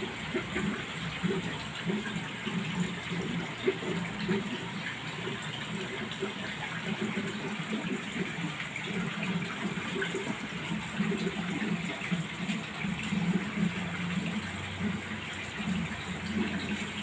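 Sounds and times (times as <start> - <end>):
low water churning: 0.0 - 17.0
running water rushing: 0.0 - 17.0.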